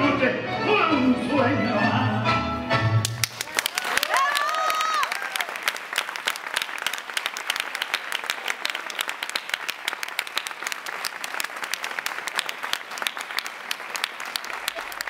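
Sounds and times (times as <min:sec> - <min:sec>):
audience applause: 0:03.0 - 0:15.0.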